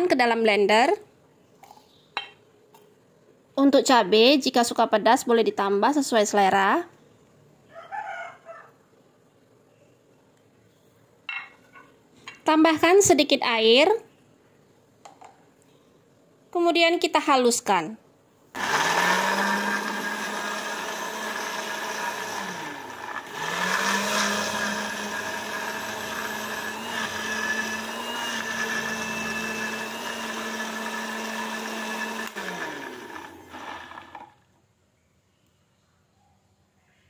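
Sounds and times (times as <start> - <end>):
blender motor whirring: 18.6 - 34.4.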